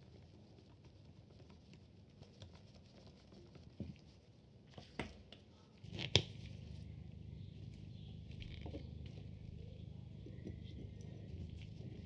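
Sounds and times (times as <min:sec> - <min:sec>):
steady low hum: 0:05.4 - 0:12.0.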